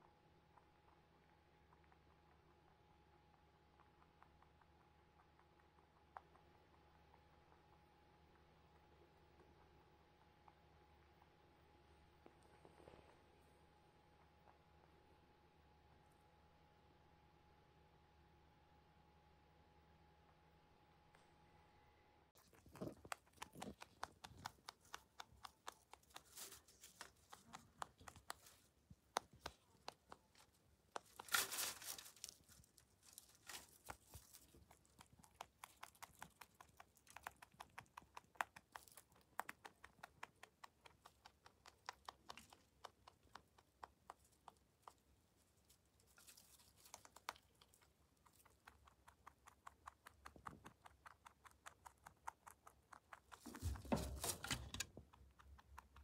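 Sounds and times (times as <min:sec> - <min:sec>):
rabbit chewing hay: 0:00.0 - 0:56.0
rustling: 0:22.4 - 0:49.1, 0:53.2 - 0:56.0.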